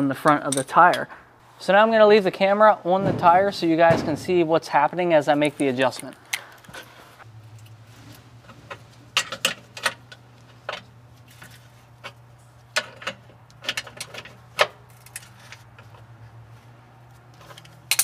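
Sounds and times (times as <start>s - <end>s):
wrenches clinking on metal: 17.4s - 18.0s.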